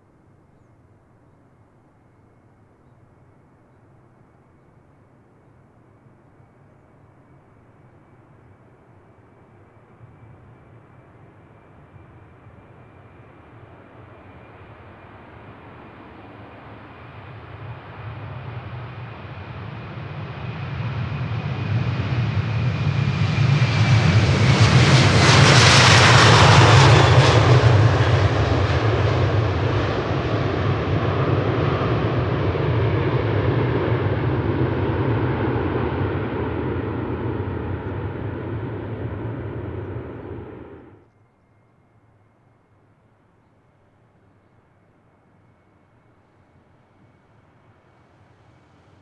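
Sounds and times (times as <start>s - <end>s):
jet airliner passing: 7.4s - 41.1s.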